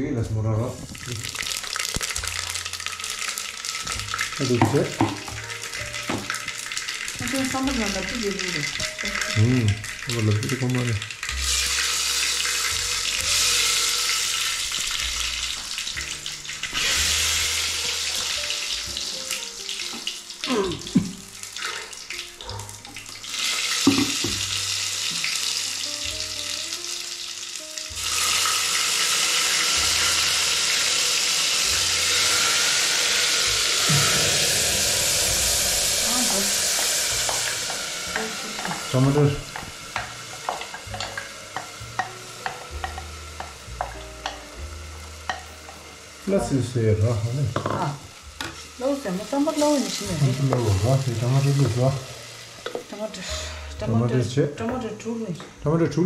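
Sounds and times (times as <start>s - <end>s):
food sizzling in hot oil: 0.0s - 56.0s
spoon stirring in pot: 39.5s - 44.4s.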